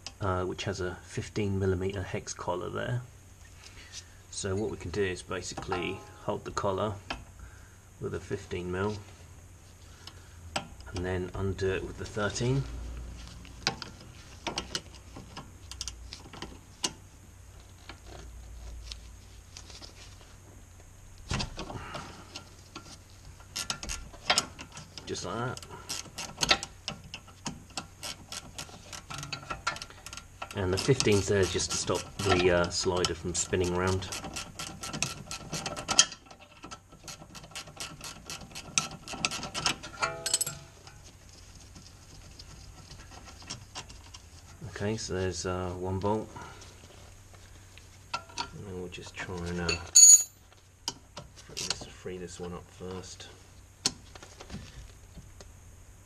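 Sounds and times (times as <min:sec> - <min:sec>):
spanners clicking on metal bolt: 0:25.6 - 0:40.7.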